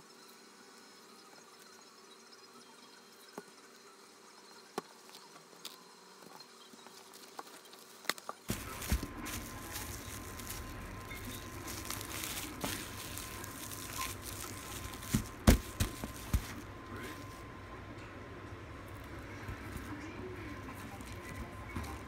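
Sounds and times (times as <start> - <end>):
cling wrap crinkling: 7.0 - 17.5.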